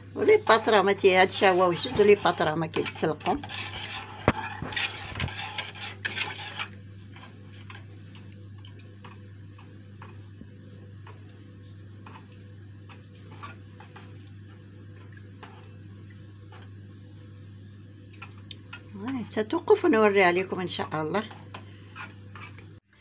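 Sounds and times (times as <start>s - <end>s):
utensil scraping saucepan: 0.2s - 9.2s, 12.0s - 14.2s, 18.7s - 22.7s.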